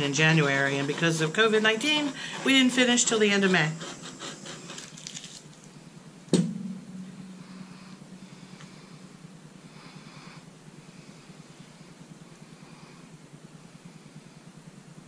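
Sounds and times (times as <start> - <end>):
faint rustling of gloved hands: 4.7 - 5.8.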